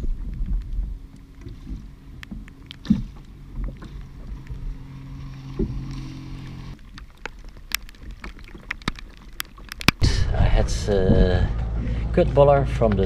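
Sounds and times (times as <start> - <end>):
steady low hum: 0.0 - 6.8, 10.0 - 13.0
water splashing along canoe hull: 0.0 - 13.0.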